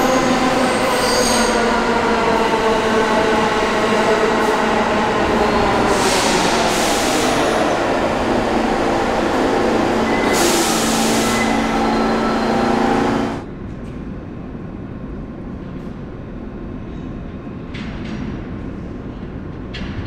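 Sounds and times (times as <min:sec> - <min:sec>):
subway train rumbling: 0:00.0 - 0:20.0
station hum: 0:05.2 - 0:13.5.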